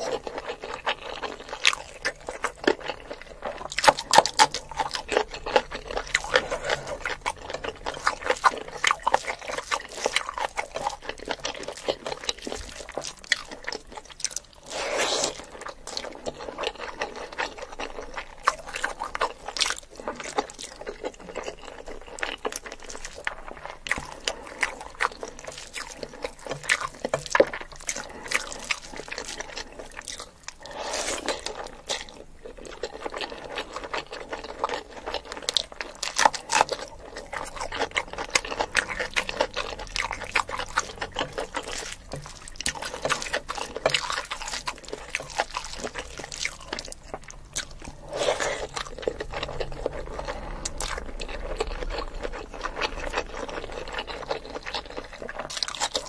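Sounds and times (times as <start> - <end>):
squelching of rice: 0.0 - 16.8, 21.8 - 34.1
wet chewing and lip smacks: 0.0 - 56.0.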